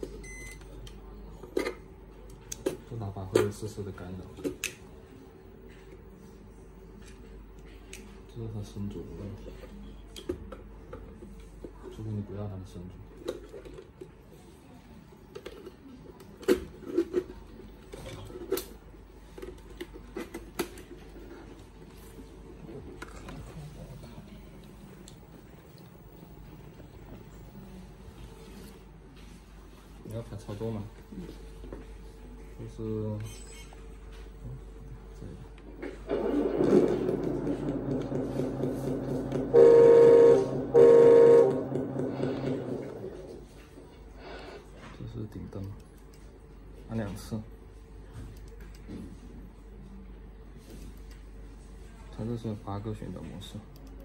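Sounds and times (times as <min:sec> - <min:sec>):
truck horn blasts: 0:39.4 - 0:42.7.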